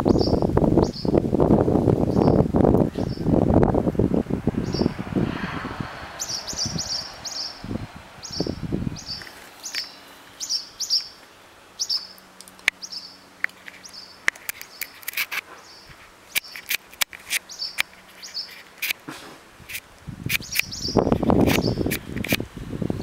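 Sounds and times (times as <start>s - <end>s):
swallow alarm chirps: 6.2s - 7.6s
sharp clicks: 19.7s - 22.4s.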